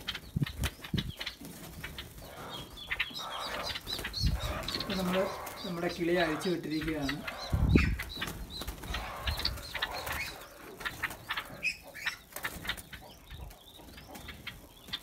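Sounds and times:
bird wings flapping: 0.0 - 2.3, 8.0 - 11.5, 12.2 - 13.0
birds scrabbling on walls: 0.0 - 15.0.

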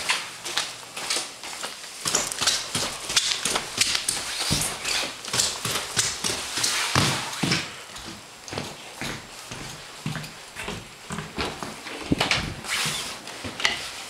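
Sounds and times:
footsteps going down stairs: 0.0 - 14.0.

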